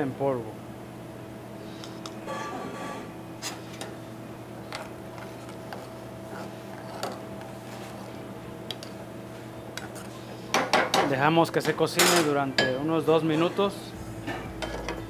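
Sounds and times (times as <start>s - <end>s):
low hum: 13.9s - 15.0s.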